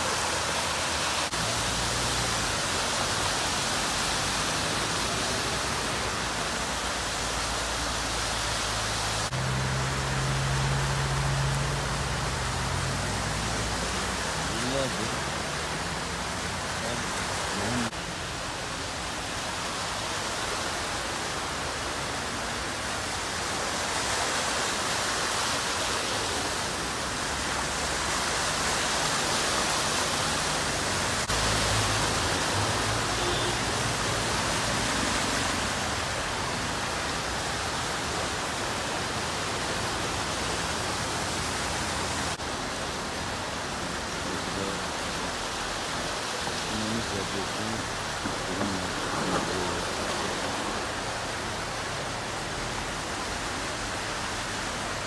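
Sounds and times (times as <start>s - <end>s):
floodwater rushing: 0.0s - 55.0s
vehicles splashing through water: 0.0s - 55.0s
low engine sound: 9.0s - 18.0s, 46.7s - 53.7s.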